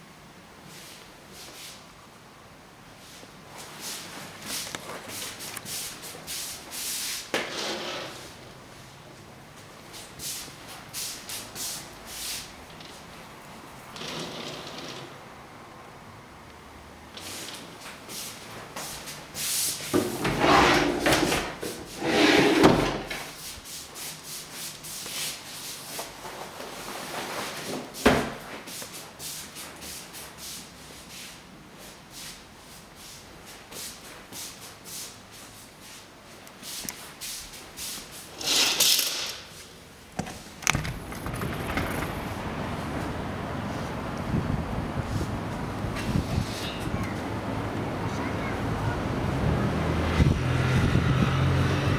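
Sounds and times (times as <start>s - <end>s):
outdoor wind and traffic hiss: 0.0s - 51.9s
curtain rubbing and brushing: 3.0s - 8.4s, 17.2s - 28.0s, 28.6s - 39.8s, 40.7s - 44.1s
sliding window opening: 7.4s - 8.4s, 13.9s - 15.3s, 17.1s - 17.9s, 19.8s - 23.4s, 38.3s - 39.6s, 40.2s - 44.2s.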